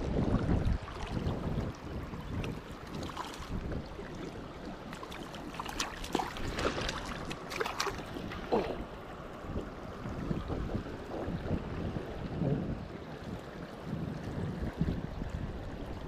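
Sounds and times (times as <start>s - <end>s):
wind buffeting microphone: 0.0s - 16.0s
river water rushing over rocks: 0.7s - 10.9s
fish splashing and knocking: 4.9s - 8.9s.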